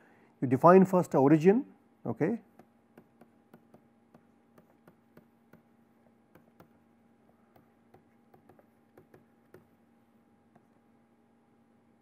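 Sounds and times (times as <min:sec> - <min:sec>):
faint electrical hum: 0:00.0 - 0:12.0
stylus tapping on pen tablet: 0:02.5 - 0:09.8.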